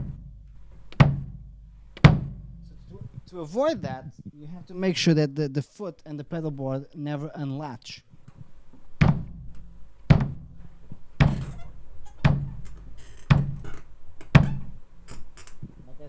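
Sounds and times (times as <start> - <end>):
kick drum strokes: 0.0 - 5.0, 8.1 - 14.9.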